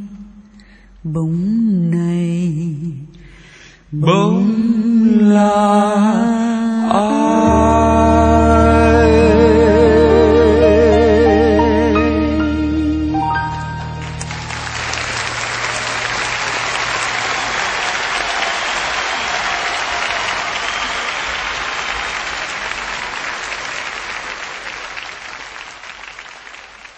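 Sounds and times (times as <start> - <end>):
band playing held notes: 7.3 - 18.4
audience applauding: 13.5 - 26.9.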